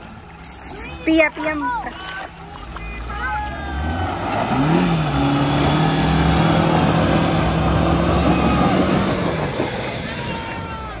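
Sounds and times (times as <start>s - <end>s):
car engine revving: 2.5s - 10.4s
loud rushing noise: 3.6s - 11.0s.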